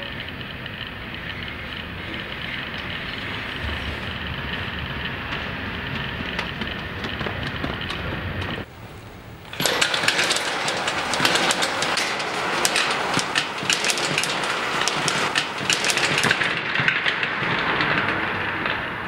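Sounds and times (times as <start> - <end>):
train clattering on rails: 0.0 - 19.0.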